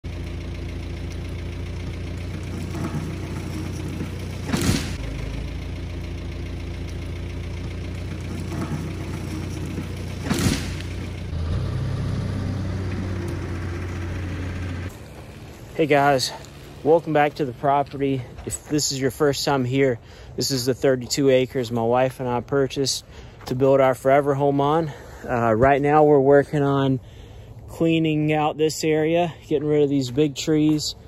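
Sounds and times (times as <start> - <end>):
backhoe diesel engine running: 0.0 - 20.4.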